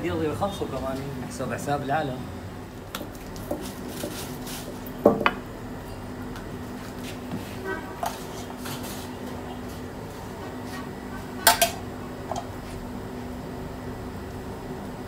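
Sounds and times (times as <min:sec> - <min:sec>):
steady low hum: 0:00.0 - 0:15.0
rolling pin knocking on stone counter: 0:05.0 - 0:05.4.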